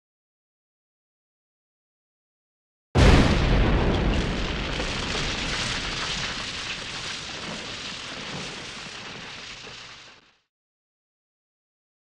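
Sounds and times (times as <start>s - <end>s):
explosion boom with rumbling tail: 3.0s - 9.8s.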